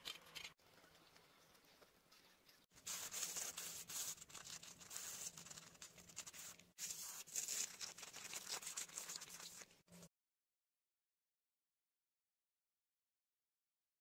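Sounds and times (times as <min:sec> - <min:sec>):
fingers scratching dry soil: 0:02.8 - 0:09.7.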